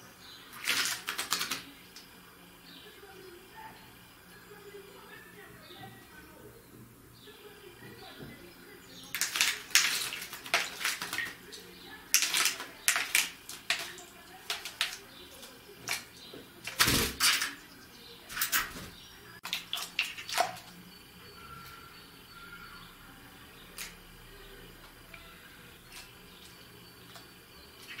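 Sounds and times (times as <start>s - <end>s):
bird splashing in water: 0.3s - 2.7s, 8.9s - 20.9s.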